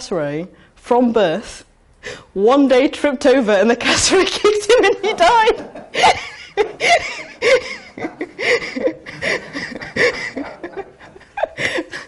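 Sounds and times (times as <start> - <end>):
people laughing: 4.1 - 12.0.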